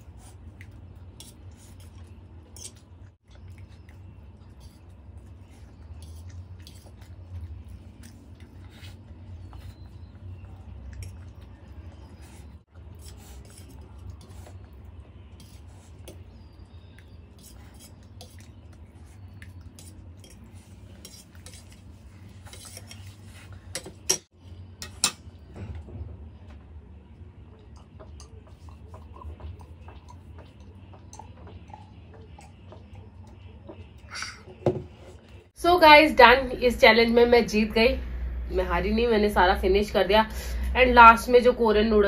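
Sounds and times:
steady low hum: 0.0 - 42.0
cutlery scraping on steel plate: 20.2 - 25.2.

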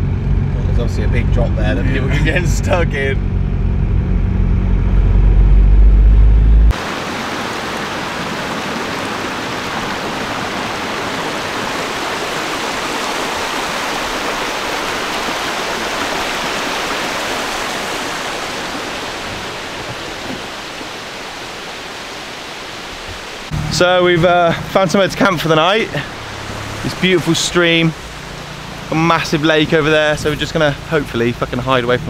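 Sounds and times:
van driving heard from cab: 0.0 - 7.1, 23.5 - 32.0
stream running over rocks: 6.7 - 32.0.

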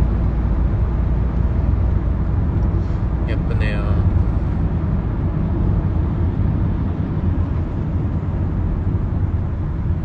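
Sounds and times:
car cabin engine and road rumble: 0.0 - 10.0.

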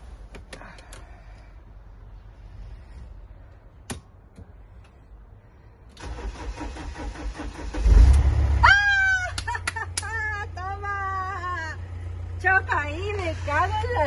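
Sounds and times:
van engine running: 0.0 - 14.0
van engine starter cranking: 5.9 - 8.7.

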